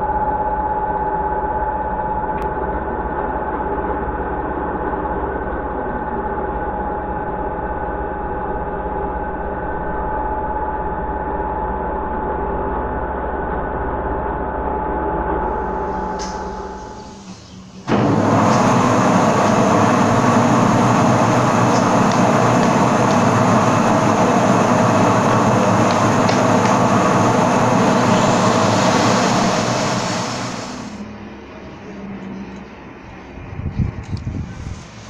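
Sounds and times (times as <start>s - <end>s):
lathe droning: 15.5s - 31.1s
lathe whine: 15.5s - 31.1s.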